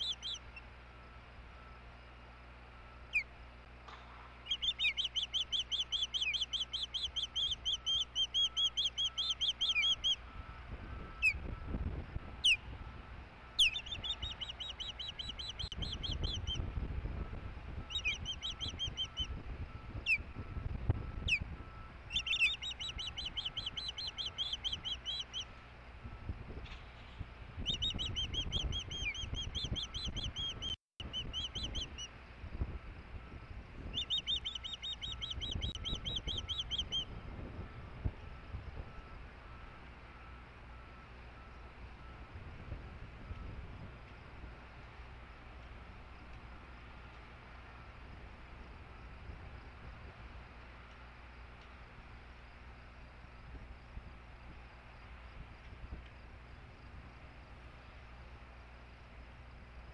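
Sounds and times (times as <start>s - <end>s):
osprey whistled chirps: 0.0s - 0.7s, 2.8s - 3.4s, 4.4s - 12.7s, 13.5s - 25.6s, 27.6s - 32.1s, 33.2s - 39.2s
sharp down-slurred bird notes: 0.0s - 0.8s, 1.6s - 25.8s, 27.6s - 32.2s, 33.2s - 42.2s.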